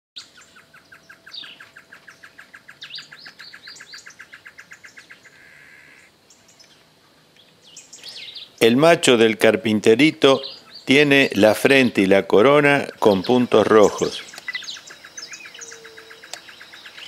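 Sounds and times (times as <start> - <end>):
buzzy bird call: 0.2 - 6.1, 12.7 - 17.0
high bird chirps: 0.2 - 6.8, 10.3 - 12.1, 12.8 - 17.0
birds calling rapid short notes: 0.2 - 8.8, 10.1 - 17.0.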